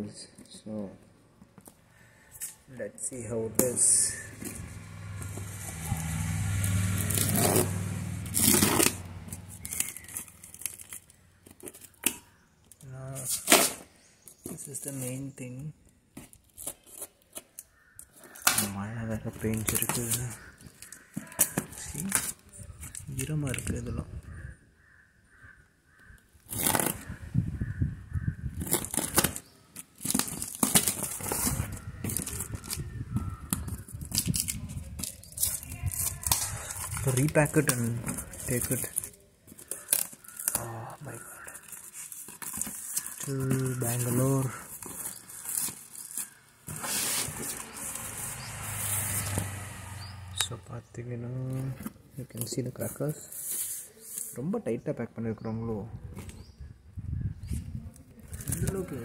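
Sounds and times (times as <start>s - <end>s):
tape tearing: 3.5s - 15.2s, 16.1s - 23.7s, 26.4s - 27.2s, 28.6s - 50.0s, 51.5s - 54.4s
blade slicing packing tape: 6.0s - 11.1s, 13.3s - 13.9s, 26.4s - 27.2s, 28.6s - 32.9s
cardboard flaps crinkling: 28.6s - 49.6s.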